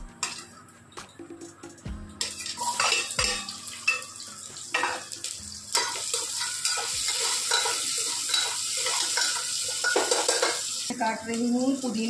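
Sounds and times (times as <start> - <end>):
spoon scraping and knocking pan: 2.2 - 10.8
onions sizzling in oil: 2.2 - 12.0.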